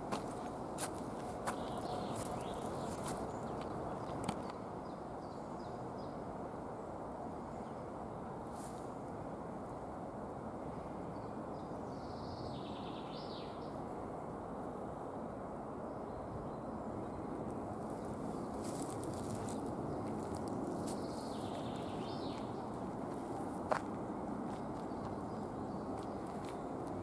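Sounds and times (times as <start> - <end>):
songbird singing: 0.0 - 6.2, 11.1 - 13.8, 15.9 - 27.0
outdoor background hiss: 0.0 - 27.0.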